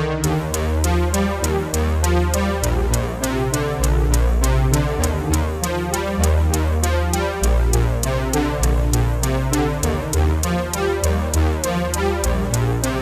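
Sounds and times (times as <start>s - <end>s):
deep bass line: 0.0s - 13.0s
synthesizer: 0.0s - 13.0s
drum machine beat: 0.2s - 13.0s.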